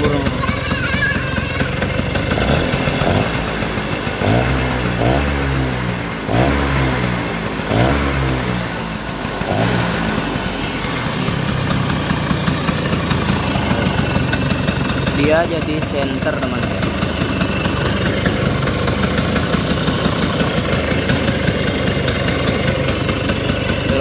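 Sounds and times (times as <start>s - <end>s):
scooter engine revving and idling: 0.0s - 24.0s.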